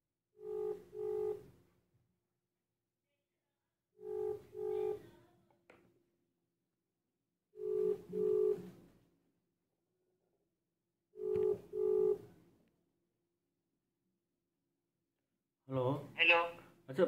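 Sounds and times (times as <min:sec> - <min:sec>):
phone ringing tone beeps: 0:00.4 - 0:01.5, 0:04.0 - 0:05.1, 0:07.6 - 0:08.7, 0:11.2 - 0:12.3.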